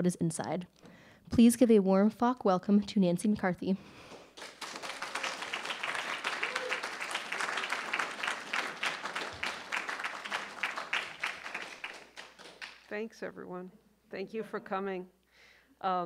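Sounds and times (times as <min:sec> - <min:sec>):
audience applauding: 0:04.1 - 0:12.9.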